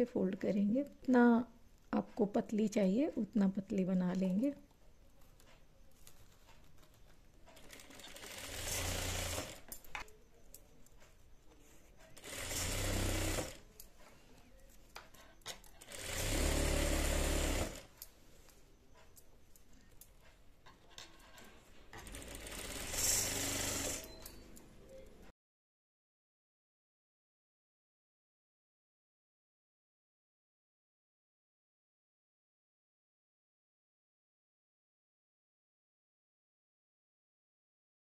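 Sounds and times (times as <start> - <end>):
sewing machine stitching: 7.4 - 9.7, 12.0 - 13.6, 15.5 - 17.9, 20.8 - 24.4.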